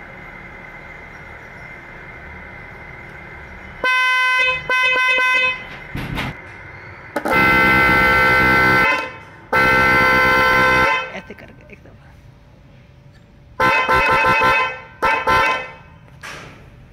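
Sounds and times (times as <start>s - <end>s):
electric horn blasts: 3.8s - 5.8s, 7.2s - 11.4s, 13.6s - 16.1s.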